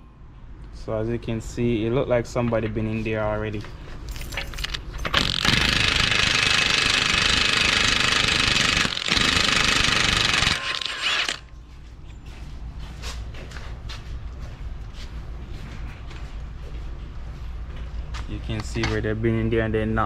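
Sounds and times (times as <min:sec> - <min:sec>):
impact wrench hammering: 0:05.0 - 0:11.4.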